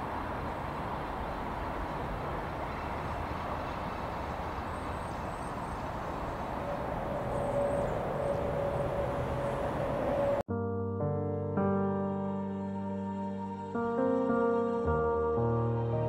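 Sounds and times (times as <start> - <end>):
train wheels rumbling on rail: 5.8 - 10.4
high squeal: 6.5 - 10.4.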